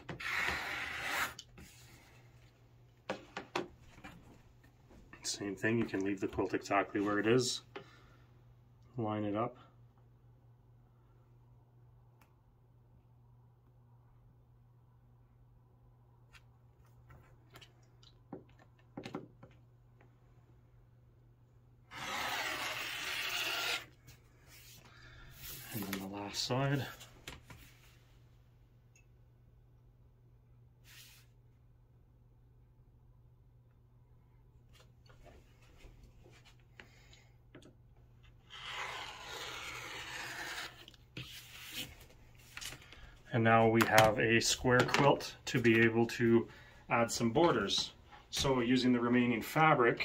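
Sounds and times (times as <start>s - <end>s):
rotary cutter slicing fabric: 21.9s - 23.9s, 38.5s - 40.9s.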